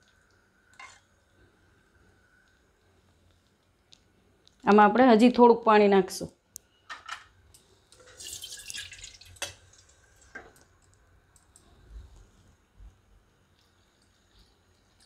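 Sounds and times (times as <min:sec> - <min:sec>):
water splashing into a wok: 0:08.0 - 0:10.4.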